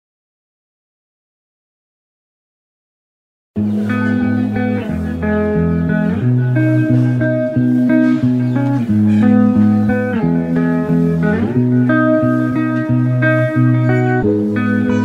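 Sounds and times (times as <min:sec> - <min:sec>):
instrumental guitar music: 0:03.6 - 0:15.0.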